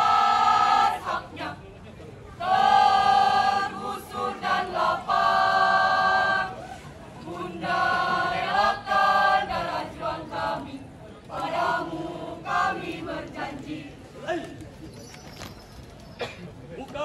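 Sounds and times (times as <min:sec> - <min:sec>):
students chanting in unison: 0:00.0 - 0:01.6, 0:02.4 - 0:06.6, 0:07.2 - 0:14.0.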